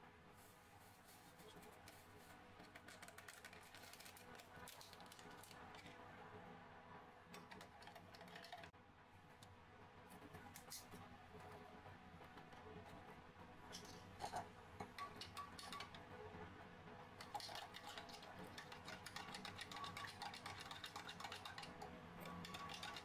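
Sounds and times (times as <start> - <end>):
coffee sachet crinkling: 2.8 - 5.7
metal spoon stirring in glass: 17.2 - 23.0.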